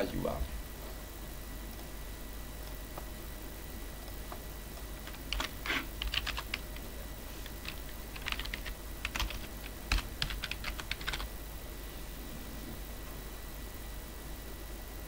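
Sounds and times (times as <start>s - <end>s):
keyboard typing clicks: 4.0s - 6.6s, 7.4s - 11.3s.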